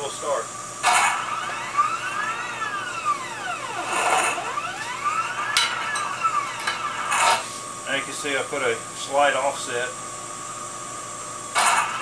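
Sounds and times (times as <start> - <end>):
wire bender motor whining: 0.0 - 8.8.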